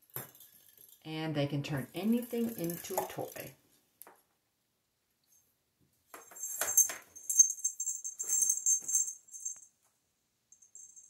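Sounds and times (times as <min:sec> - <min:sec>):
bell in toy ball jingling: 0:06.3 - 0:09.7, 0:10.5 - 0:11.0.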